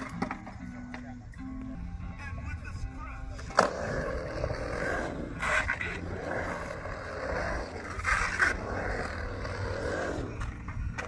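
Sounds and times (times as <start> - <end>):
skateboard wheels rolling on concrete: 0.0 - 11.0
skateboard scrapes: 3.3 - 11.0.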